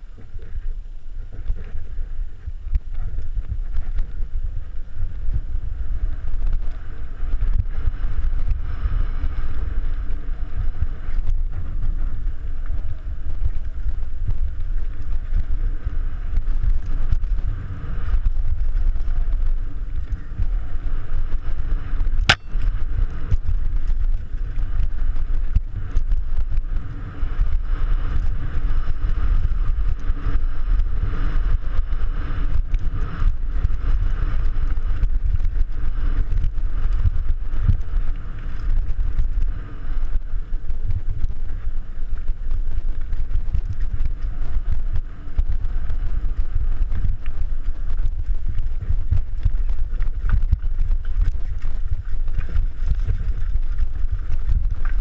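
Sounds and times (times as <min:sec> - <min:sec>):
low rumble of bike on trail: 0:00.0 - 0:55.0
wind noise on microphone: 0:00.0 - 0:55.0
sharp click: 0:22.3 - 0:22.6.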